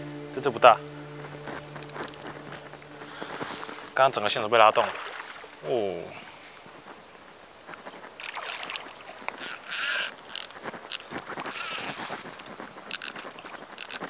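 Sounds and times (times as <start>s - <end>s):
reeds rustling: 0.0s - 14.0s
water splashing: 0.0s - 14.0s
small clicks: 1.8s - 2.8s, 7.7s - 14.0s.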